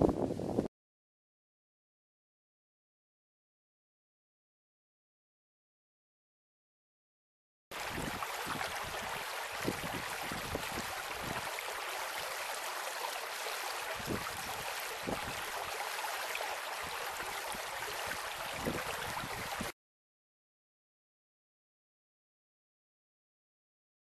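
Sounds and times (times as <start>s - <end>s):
stream rushing over rocks: 7.7s - 19.7s.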